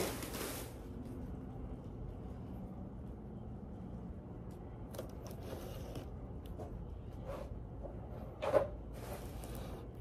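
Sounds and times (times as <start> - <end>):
plastic binders rustling and scraping: 0.0 - 0.9.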